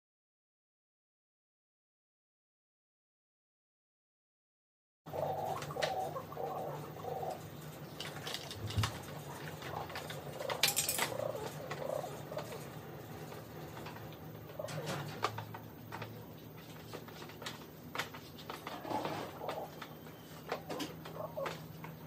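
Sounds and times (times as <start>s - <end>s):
caged birds calling: 5.1s - 22.0s
hand tools clinking on metal: 9.8s - 11.9s.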